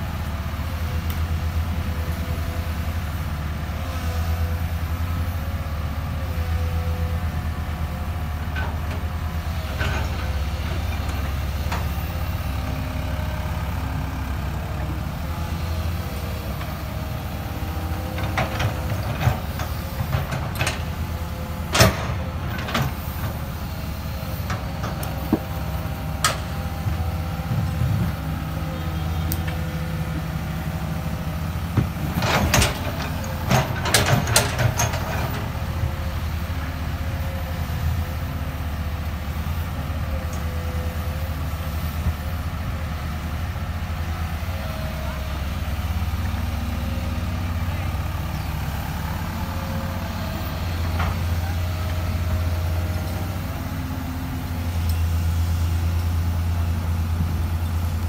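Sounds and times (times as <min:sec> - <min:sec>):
excavator diesel engine running: 0:00.0 - 0:58.0
metal clanks and knocks: 0:31.7 - 0:35.5.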